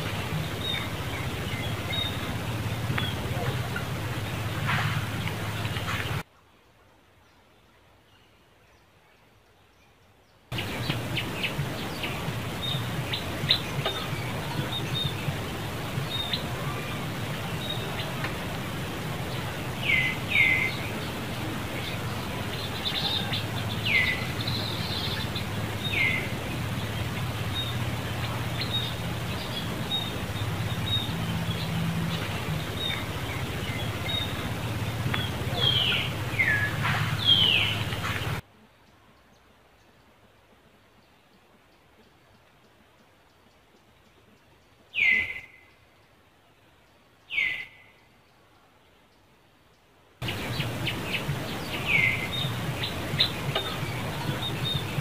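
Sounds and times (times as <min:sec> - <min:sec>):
low hum: 0:00.0 - 0:06.2, 0:10.6 - 0:38.4.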